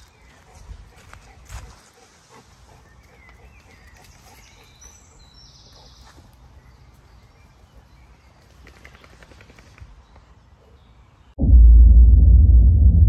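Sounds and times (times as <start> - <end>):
birds chirping and trilling: 0.0 - 11.4
steady low rumble: 11.4 - 13.0.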